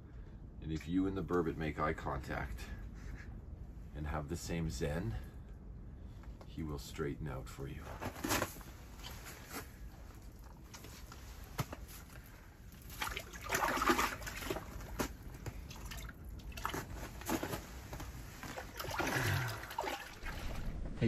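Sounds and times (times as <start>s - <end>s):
water sloshing and splashing: 10.4s - 21.0s.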